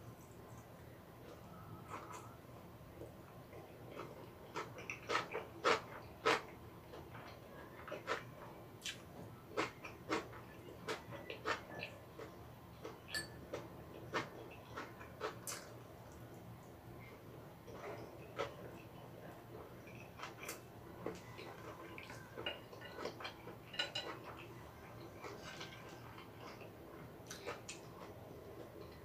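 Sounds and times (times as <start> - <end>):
chewing and mouth smacks: 3.0 - 16.8, 25.1 - 29.0.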